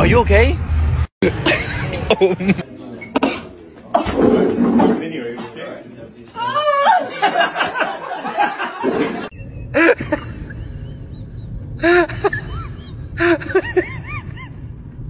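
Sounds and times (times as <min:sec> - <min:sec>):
low hum: 0:00.0 - 0:02.5, 0:09.4 - 0:15.0
people laughing: 0:01.2 - 0:02.8, 0:06.4 - 0:15.0.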